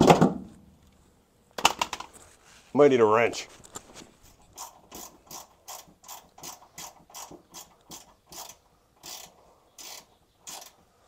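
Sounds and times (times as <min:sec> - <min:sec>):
hand ratchet clicking: 0:04.6 - 0:10.8.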